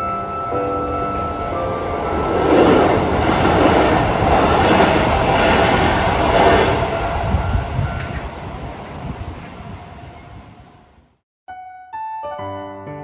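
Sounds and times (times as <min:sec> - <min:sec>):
train wheels clattering on rails: 0:02.3 - 0:10.4.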